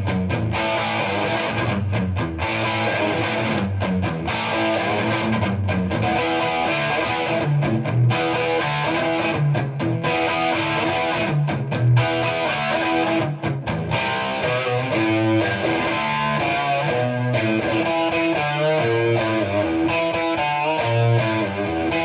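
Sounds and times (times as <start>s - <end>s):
distorted electric guitar: 0.0s - 22.0s.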